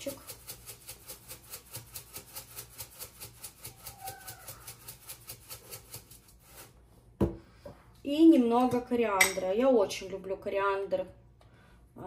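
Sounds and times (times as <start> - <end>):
pepper mill grinding: 0.0 - 6.7.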